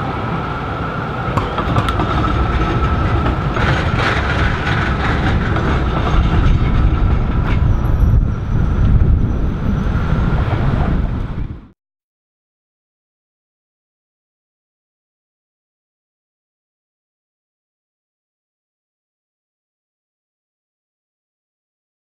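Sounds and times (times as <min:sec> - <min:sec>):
road traffic rumble: 0:00.0 - 0:11.7
electric tram running with whine: 0:00.0 - 0:11.8.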